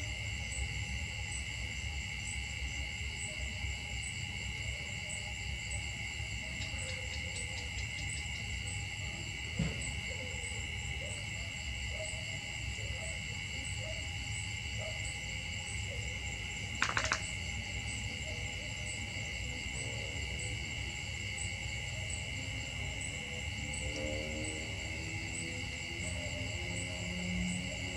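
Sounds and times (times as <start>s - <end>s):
insect chorus buzzing: 0.0s - 27.9s
sharp clicks: 16.8s - 17.3s.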